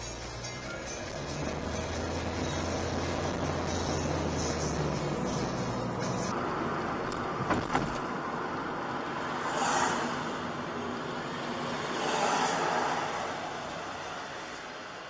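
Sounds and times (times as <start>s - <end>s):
road and tyre noise: 0.0s - 15.0s
vehicles passing on wet road: 6.3s - 15.0s.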